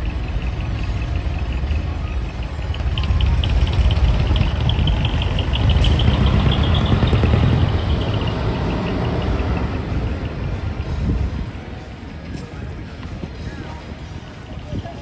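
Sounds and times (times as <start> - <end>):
fast high-pitched ticking: 0.0 - 10.4
truck diesel engines rumbling: 0.0 - 15.0.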